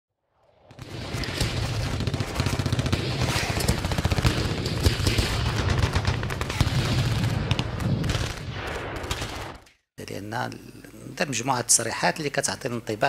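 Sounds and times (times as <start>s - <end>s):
rapid sharp cracks: 0.8s - 9.8s.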